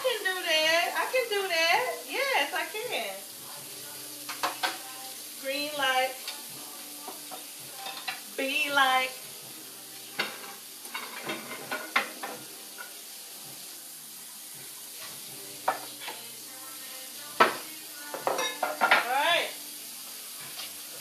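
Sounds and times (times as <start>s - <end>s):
food sizzling in a pan: 0.0s - 21.0s
dishes and utensils clattering: 4.2s - 4.9s, 7.0s - 8.3s, 10.1s - 13.1s, 15.0s - 16.3s, 17.4s - 19.3s.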